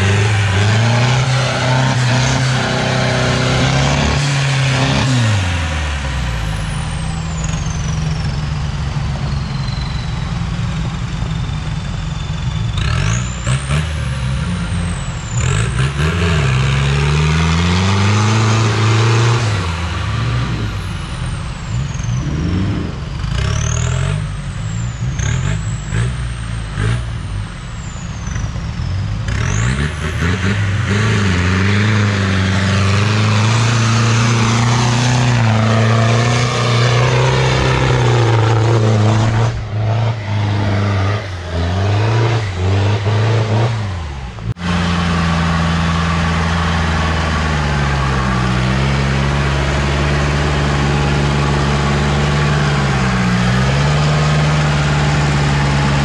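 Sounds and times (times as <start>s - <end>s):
pickup engine revving: 0.0s - 11.2s, 12.7s - 27.6s, 28.8s - 56.0s
high-pitched whine: 0.0s - 15.9s, 19.8s - 50.4s.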